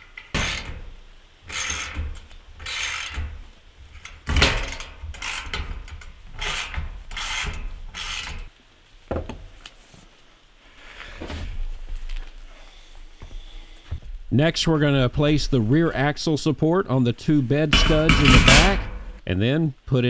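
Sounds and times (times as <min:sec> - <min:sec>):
socket ratchet clicking: 0:01.5 - 0:03.3, 0:04.0 - 0:08.5.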